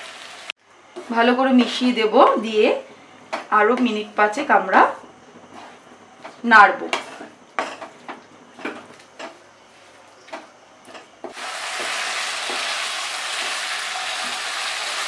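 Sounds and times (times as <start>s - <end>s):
loud frying sizzle: 0.0s - 2.7s, 11.3s - 15.0s
spatula scraping a pan: 5.5s - 5.8s, 6.9s - 7.9s.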